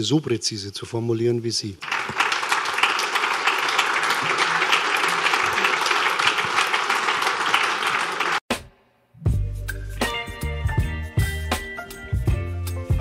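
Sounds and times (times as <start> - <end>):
audience applauding: 1.8 - 8.4.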